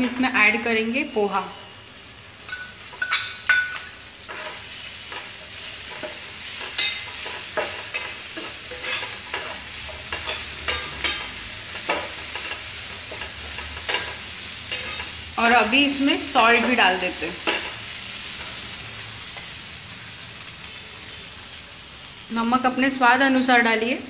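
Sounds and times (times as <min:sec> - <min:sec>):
light sizzle: 0:00.0 - 0:24.0
ladle scraping a frying pan: 0:04.2 - 0:15.1.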